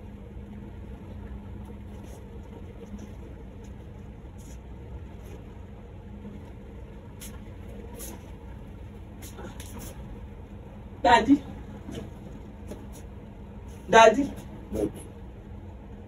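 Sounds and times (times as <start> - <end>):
low mechanical hum: 0.0 - 16.0
soft scuffs: 7.2 - 8.4, 9.2 - 10.1, 11.9 - 15.2.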